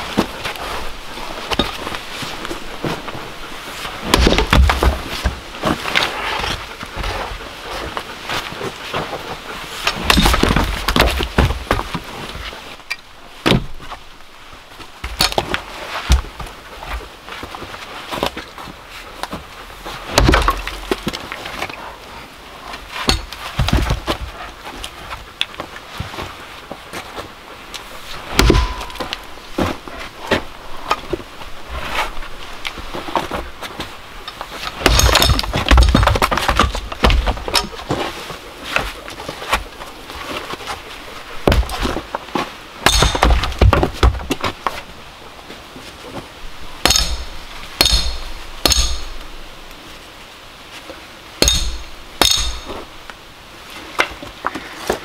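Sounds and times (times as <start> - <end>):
axe chopping wood: 4.0 - 5.4, 9.9 - 11.8, 13.4 - 13.8, 20.1 - 21.2, 23.0 - 24.2, 28.3 - 29.3, 34.7 - 38.0, 41.4 - 41.9, 42.8 - 44.2, 46.8 - 49.2, 51.4 - 52.8
firewood pieces clattering: 9.9 - 12.0, 20.1 - 21.8, 28.2 - 29.7, 34.2 - 38.1, 42.8 - 44.8
sharp ringing axe strikes: 28.4 - 29.2, 42.8 - 43.4, 46.9 - 49.2, 51.4 - 52.8.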